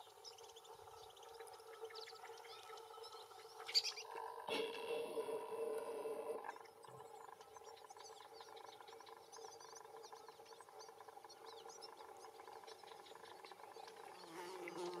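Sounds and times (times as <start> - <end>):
faint steady hum: 0.0 - 15.0
canaries twittering: 3.3 - 4.1.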